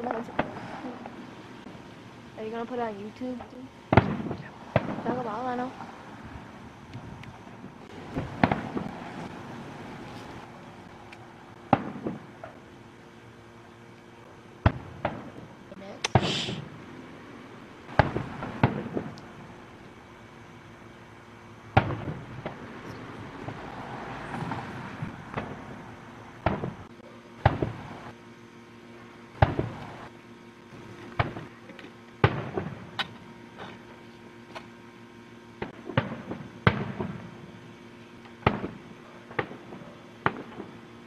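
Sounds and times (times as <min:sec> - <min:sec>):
fireworks bang: 0:00.0 - 0:01.3, 0:03.4 - 0:05.6, 0:07.6 - 0:09.5, 0:11.7 - 0:12.6, 0:14.6 - 0:15.5, 0:16.1 - 0:16.8, 0:17.9 - 0:19.6, 0:21.7 - 0:22.7, 0:23.4 - 0:28.1, 0:29.4 - 0:30.0, 0:31.2 - 0:31.5, 0:32.2 - 0:33.2, 0:35.6 - 0:37.3, 0:38.4 - 0:40.8
fireworks booms: 0:00.0 - 0:02.0, 0:03.3 - 0:10.0, 0:10.9 - 0:12.6, 0:14.6 - 0:16.8, 0:17.9 - 0:19.8, 0:21.7 - 0:28.1, 0:29.4 - 0:30.1, 0:31.2 - 0:31.5, 0:32.2 - 0:33.1, 0:35.6 - 0:37.4, 0:38.4 - 0:40.8
fireworks crackling: 0:00.0 - 0:28.2, 0:29.2 - 0:33.2, 0:35.6 - 0:41.0.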